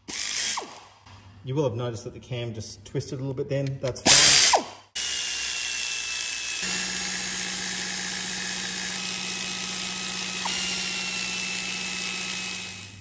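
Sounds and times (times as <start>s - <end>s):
pneumatic air ratchet running: 0.0s - 0.9s, 4.1s - 13.0s.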